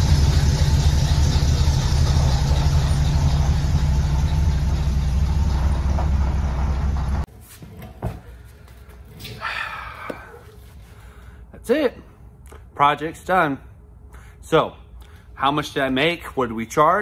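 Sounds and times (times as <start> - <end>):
pickup engine rumble: 0.0 - 7.3.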